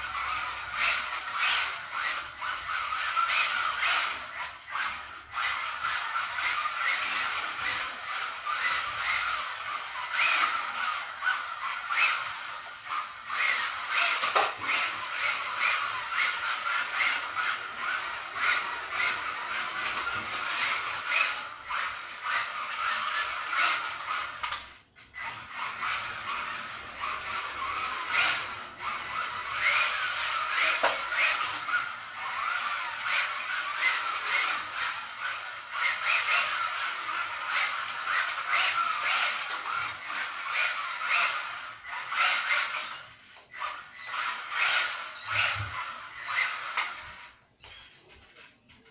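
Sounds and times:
electric motor whine: 0.0s - 47.8s
tyres squeaking on tiles: 41.8s - 48.9s.

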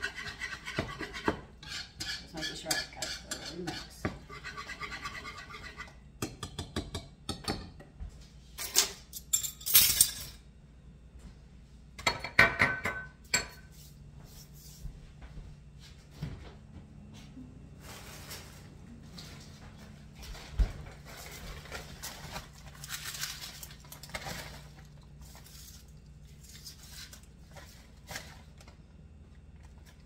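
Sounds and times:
utensil clinking against bowl: 0.4s - 4.0s
clattering and rustling handling noise: 15.2s - 30.0s.

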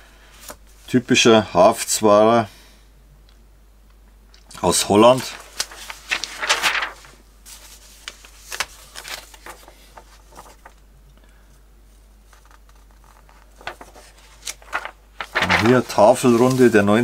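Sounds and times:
magazine pages rustling: 4.5s - 10.8s, 12.3s - 17.0s.

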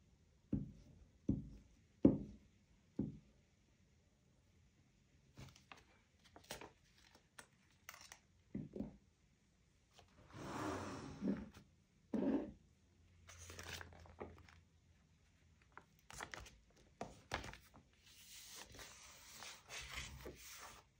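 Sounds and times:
paper rustling: 5.4s - 8.2s, 13.3s - 14.6s, 15.7s - 20.9s.

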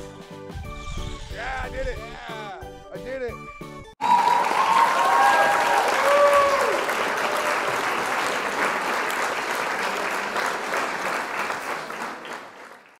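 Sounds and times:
crowd applause: 4.0s - 13.0s.

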